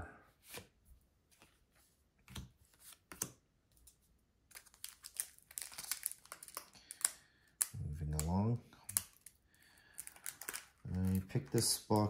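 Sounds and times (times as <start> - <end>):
foil packaging crinkling: 4.5 - 7.2, 8.9 - 12.0.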